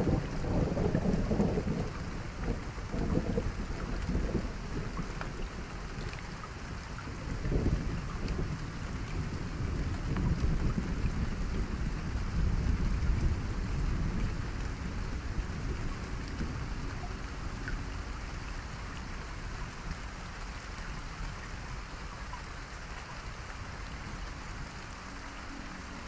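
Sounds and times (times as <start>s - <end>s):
rain-like hiss: 0.0s - 26.0s
low rumble: 7.2s - 21.9s.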